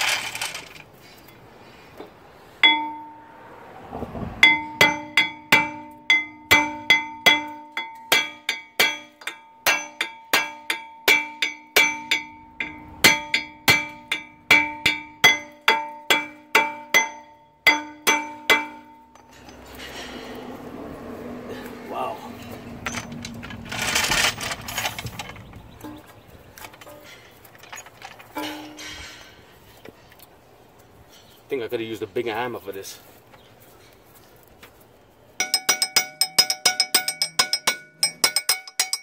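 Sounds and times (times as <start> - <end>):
hammer striking ringing metal rotor: 4.4 - 19.8, 35.4 - 39.0.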